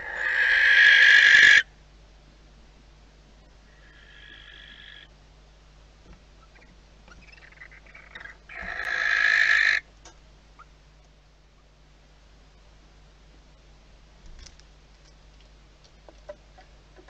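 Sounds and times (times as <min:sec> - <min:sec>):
barn owl screech: 0:00.0 - 0:01.6.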